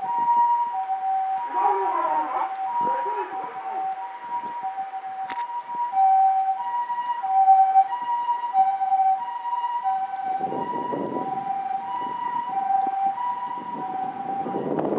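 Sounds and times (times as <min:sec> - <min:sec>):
road noise: 0:00.0 - 0:14.9
two-tone ambulance siren: 0:00.0 - 0:14.9.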